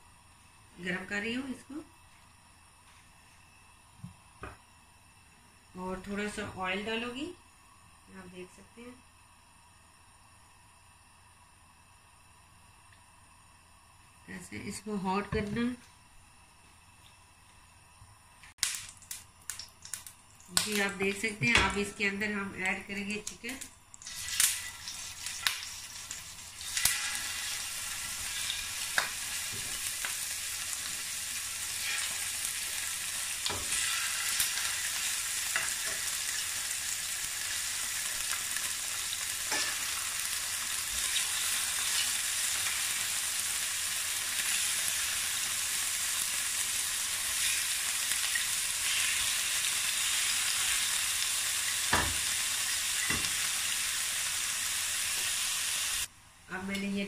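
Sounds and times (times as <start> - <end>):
chicken sizzling in oil: 23.4 - 56.1.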